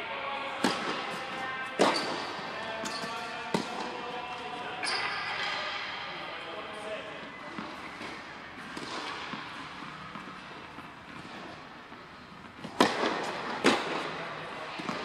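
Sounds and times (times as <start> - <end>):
tennis racket hitting ball: 0.6 - 1.2, 1.8 - 3.9, 7.6 - 11.6, 12.4 - 14.1.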